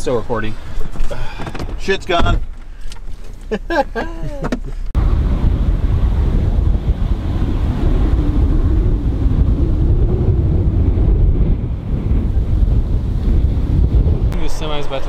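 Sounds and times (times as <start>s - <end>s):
wind buffeting microphone: 4.9s - 15.0s.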